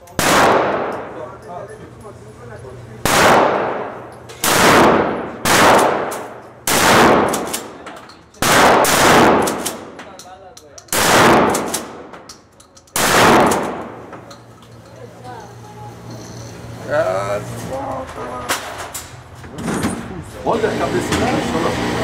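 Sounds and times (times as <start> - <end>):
gunshots echoing indoors: 0.2 - 1.2, 3.0 - 7.8, 8.4 - 10.0, 10.9 - 12.3, 13.0 - 14.1.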